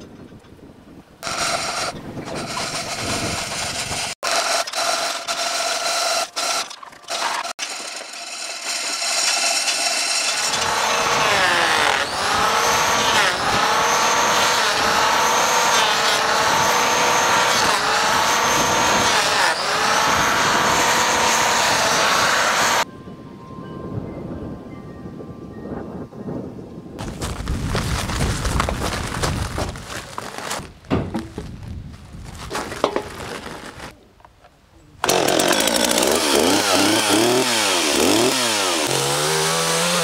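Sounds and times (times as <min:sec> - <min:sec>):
electric planer cutting wood: 0:01.2 - 0:22.9, 0:35.0 - 0:40.0.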